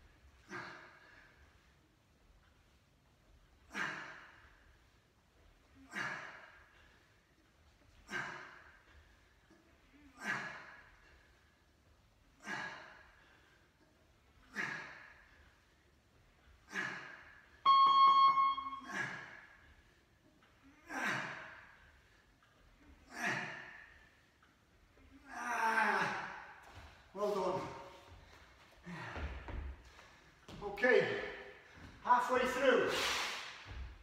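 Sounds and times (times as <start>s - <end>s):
loud electronic beep: 17.7s - 19.0s
man exhaling sharply: 32.9s - 33.7s.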